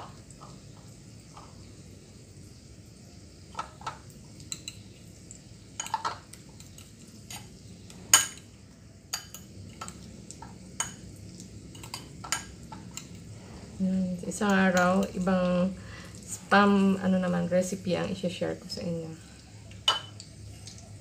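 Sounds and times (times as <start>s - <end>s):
food sizzling in oil: 0.0s - 21.0s
utensils clinking on dishes: 5.8s - 7.5s, 8.1s - 8.5s, 9.1s - 11.0s, 11.7s - 13.2s, 19.8s - 20.2s.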